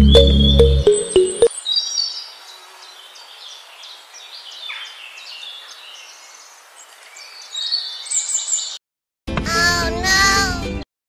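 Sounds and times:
birds chirping and twittering: 0.0 - 8.8
steady outdoor hiss: 1.5 - 8.6.

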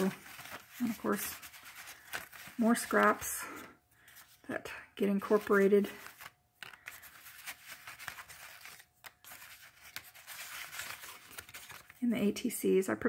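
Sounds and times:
paper scraps rustling: 0.0 - 4.4, 5.1 - 12.0.

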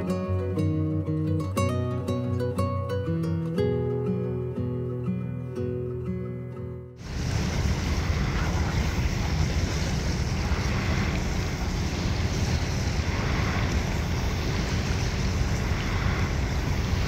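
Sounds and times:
waves washing on shore: 7.0 - 17.0
wind buffeting microphone: 7.0 - 17.0.

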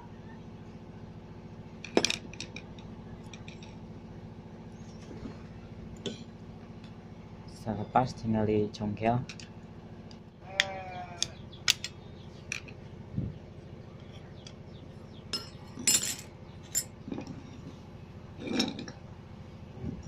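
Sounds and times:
steel parts set down: 15.4 - 17.2.

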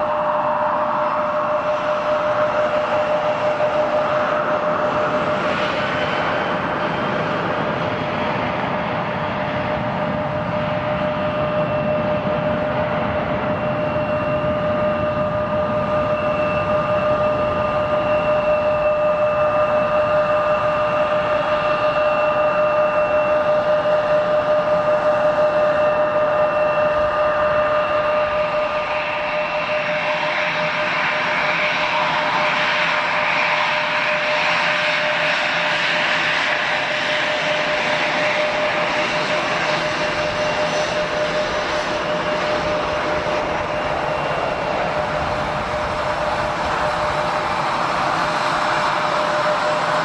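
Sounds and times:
jet engines whining: 0.0 - 50.0
jet taxiing close by: 0.0 - 50.0.

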